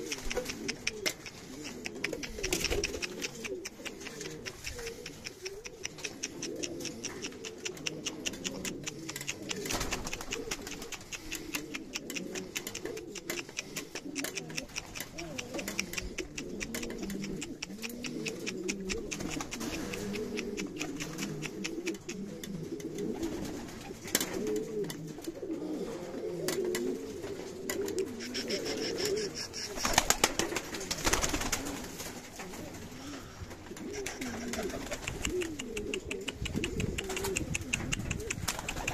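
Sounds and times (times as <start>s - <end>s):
wing flaps: 0.0s - 22.2s, 28.3s - 32.7s, 33.7s - 38.9s
pigeons cooing: 0.0s - 38.9s.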